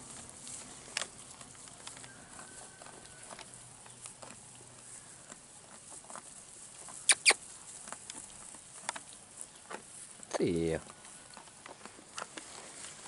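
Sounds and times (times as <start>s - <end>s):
sheep chewing dry hay: 0.0s - 13.0s
sharp clicks: 7.1s - 7.4s.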